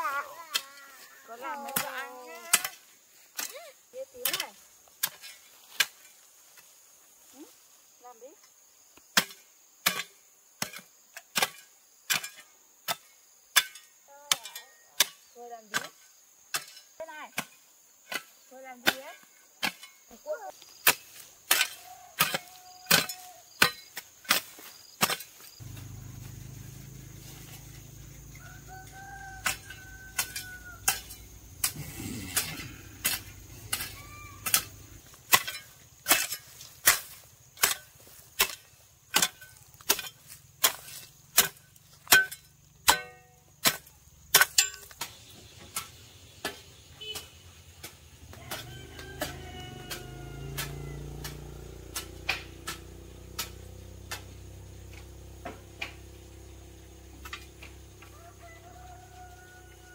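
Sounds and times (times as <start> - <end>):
hoe chopping into soil: 20.7 - 26.4, 28.4 - 56.1.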